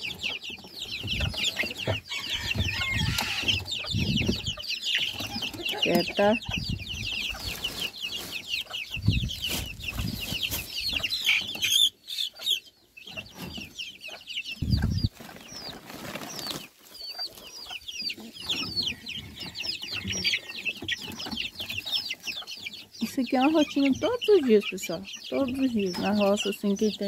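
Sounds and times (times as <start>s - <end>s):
chicks peeping: 0.0s - 27.0s.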